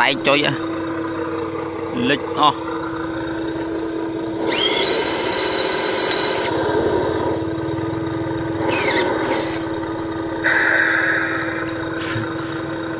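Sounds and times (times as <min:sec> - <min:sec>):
whining drive noise: 0:00.0 - 0:12.9
toy truck motor hum: 0:00.6 - 0:10.5.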